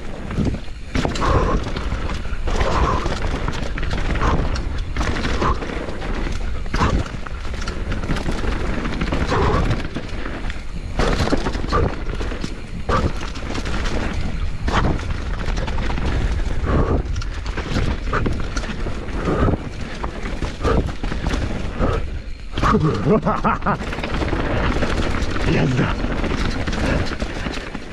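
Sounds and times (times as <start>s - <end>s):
bike knocking and rattling: 0.0s - 27.9s
tyres on dirt and leaves: 0.0s - 27.9s
wind rumble on microphone: 0.0s - 27.9s.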